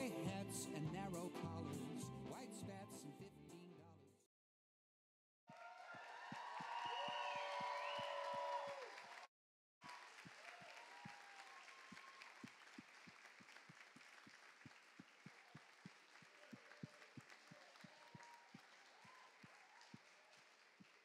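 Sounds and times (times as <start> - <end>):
faint cheers: 5.5 - 12.6, 15.3 - 20.5
audience applause: 5.5 - 21.0.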